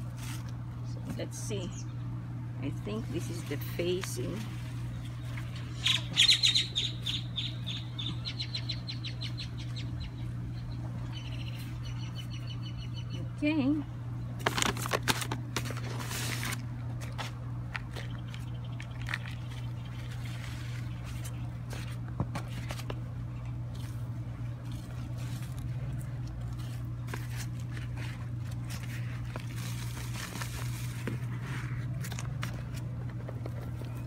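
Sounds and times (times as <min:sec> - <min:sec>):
steady low hum: 0:00.0 - 0:34.0
soil crunching and rustling: 0:14.4 - 0:34.0.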